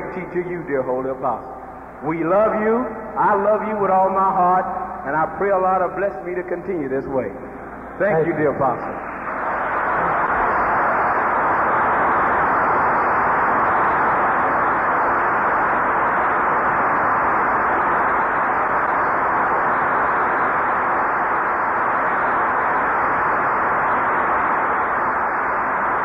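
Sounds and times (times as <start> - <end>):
large audience applauding: 9.2 - 15.2.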